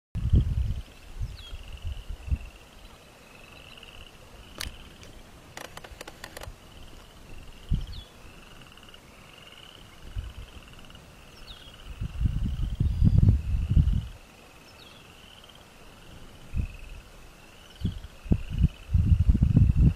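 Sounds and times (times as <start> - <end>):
sharp clicks: 4.6 - 6.5.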